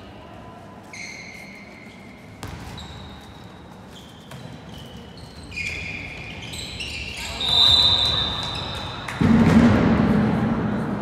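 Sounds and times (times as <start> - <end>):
murmur of indoor hall: 0.0 - 11.0
sports shoes squeaking: 0.8 - 9.2.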